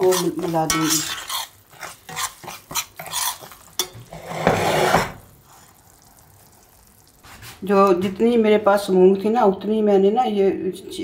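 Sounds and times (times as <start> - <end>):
spatula scraping metal pan: 0.0 - 5.6
light sizzle: 0.0 - 9.8.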